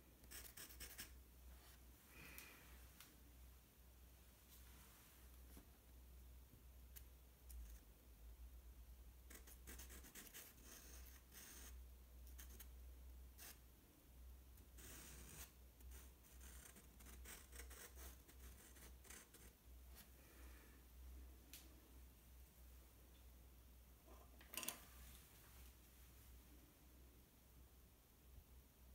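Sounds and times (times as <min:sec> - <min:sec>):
pencil scratching on paper: 0:00.2 - 0:01.2, 0:09.3 - 0:12.7, 0:14.8 - 0:19.6.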